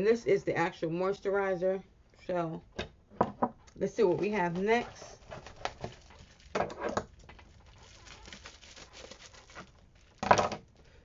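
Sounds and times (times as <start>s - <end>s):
packaging rustling: 4.0s - 10.8s.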